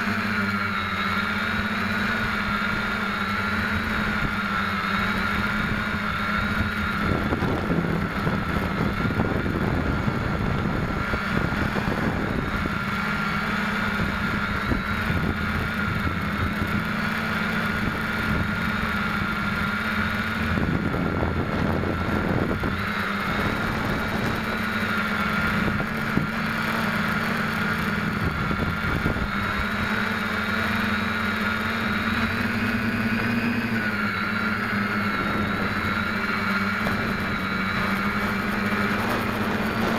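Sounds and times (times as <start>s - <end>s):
drone propellers humming: 0.0s - 39.9s.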